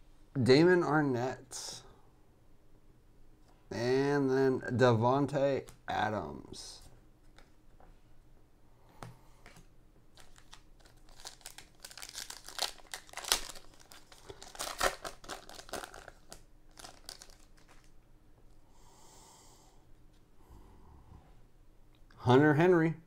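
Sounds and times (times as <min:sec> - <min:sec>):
wrapper crinkling and tearing: 0:10.1 - 0:18.0.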